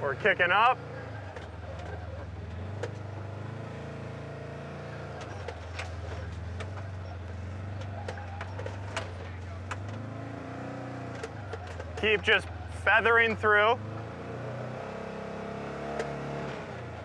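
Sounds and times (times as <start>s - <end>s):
off-road vehicle engine running: 0.0s - 17.0s
tires knocking on rock: 5.2s - 12.7s.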